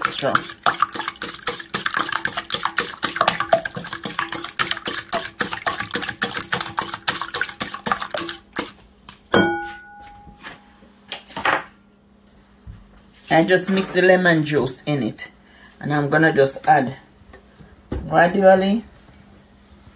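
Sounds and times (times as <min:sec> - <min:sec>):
whisk clicking against bowl: 0:00.0 - 0:08.8.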